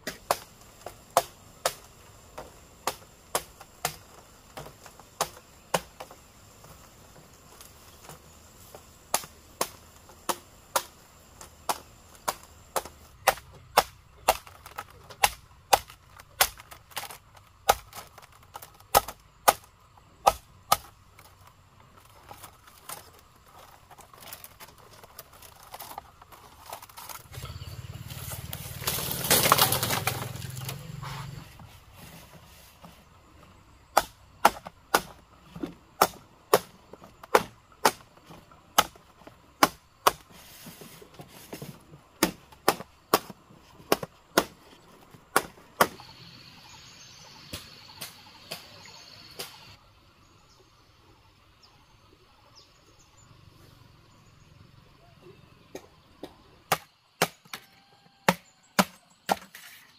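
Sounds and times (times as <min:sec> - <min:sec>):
machete chopping bamboo: 0:00.0 - 0:06.2, 0:09.0 - 0:21.4, 0:28.3 - 0:30.8, 0:33.9 - 0:40.4, 0:41.5 - 0:46.1, 0:56.7 - 0:59.7.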